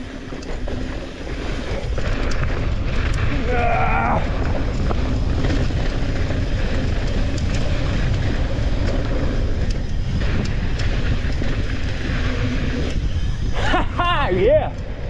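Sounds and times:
tyres over dirt and rock: 0:00.0 - 0:13.7
bike clicks and rattles: 0:00.0 - 0:15.0
wind buffeting microphone: 0:00.0 - 0:15.0.

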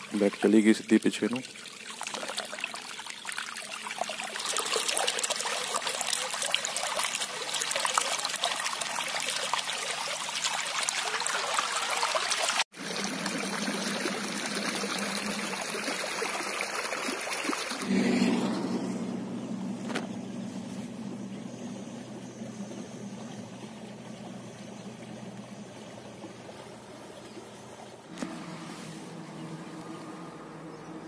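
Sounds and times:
water gushing from a pipe: 0:00.0 - 0:18.5
low steady hum: 0:17.8 - 0:31.0.

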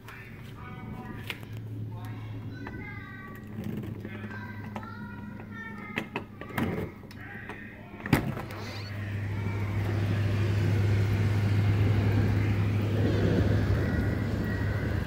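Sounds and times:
low outdoor hum: 0:00.0 - 0:15.0
window sliding open: 0:08.1 - 0:15.0
rain hissing: 0:08.6 - 0:15.0.

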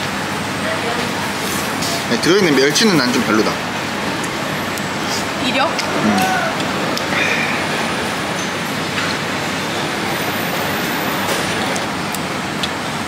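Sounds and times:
busy eatery din: 0:00.0 - 0:13.0.

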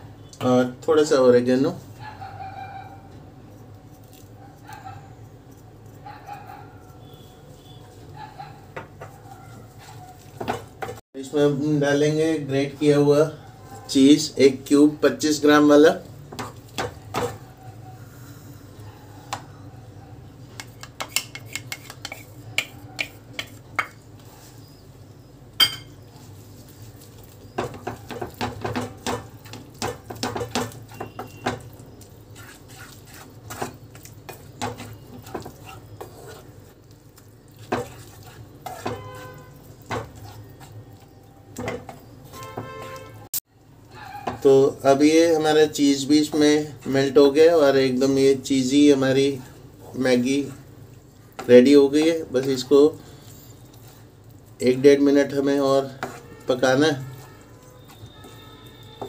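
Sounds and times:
spatula scraping and knocking pan: 0:08.7 - 0:11.0, 0:16.3 - 0:17.5, 0:20.6 - 0:24.4, 0:27.1 - 0:36.8, 0:37.5 - 0:43.1, 0:55.2 - 0:59.0.

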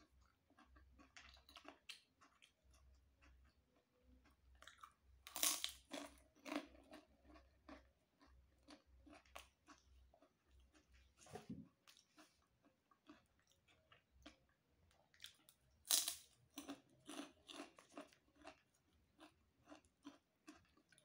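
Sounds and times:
crackers crunching: 0:15.2 - 0:21.0.

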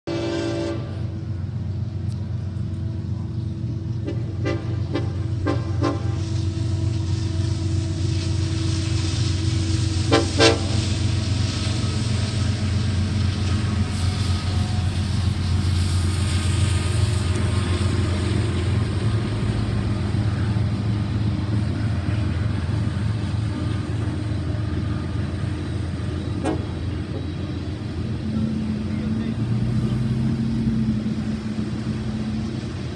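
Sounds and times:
train horn toots: 0:00.1 - 0:01.3, 0:03.9 - 0:12.6, 0:21.8 - 0:27.5
freight train rumbling past: 0:00.1 - 0:32.9.

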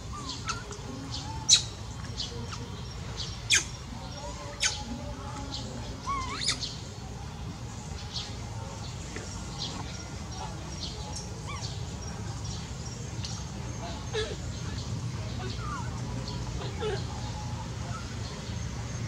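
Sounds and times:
low outdoor rumble: 0:00.0 - 0:19.0
high-pitched animal chirps and squeaks: 0:06.0 - 0:06.7.

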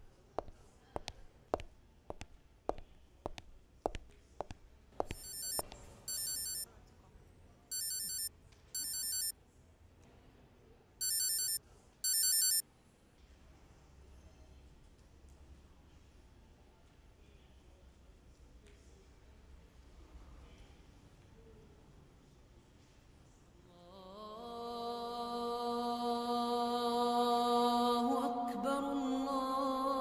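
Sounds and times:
footsteps on hard floor: 0:00.4 - 0:05.6
mobile phone ringing: 0:05.0 - 0:06.6, 0:07.7 - 0:09.3, 0:11.0 - 0:12.6.

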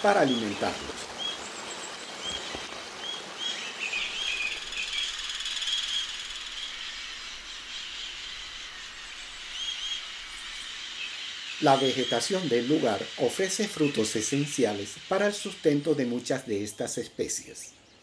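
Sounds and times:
background hiss: 0:00.0 - 0:18.0
birds chirping: 0:00.0 - 0:18.0.

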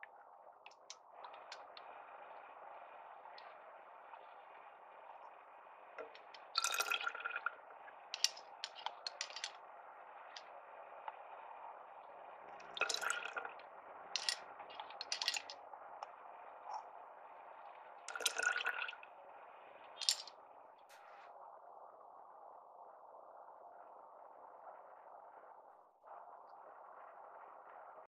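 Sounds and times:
coffee pouring and splashing: 0:06.0 - 0:07.5, 0:08.2 - 0:09.6, 0:12.7 - 0:13.6, 0:14.2 - 0:15.6, 0:18.1 - 0:19.0
ice cubes clinking in jar: 0:08.2 - 0:09.5, 0:12.8 - 0:13.3, 0:14.2 - 0:14.4, 0:15.0 - 0:15.5, 0:20.0 - 0:20.3.

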